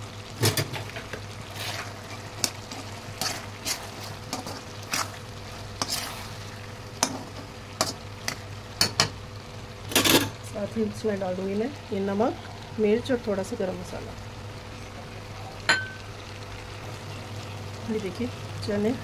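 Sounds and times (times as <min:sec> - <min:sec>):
food sizzling: 0:00.0 - 0:19.0
spatula scraping iron pan: 0:05.8 - 0:06.3.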